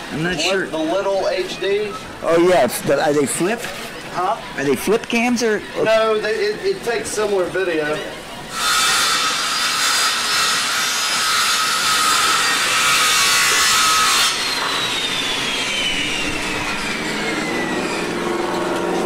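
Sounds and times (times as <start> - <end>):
electric saw cutting fish: 8.5 - 19.0.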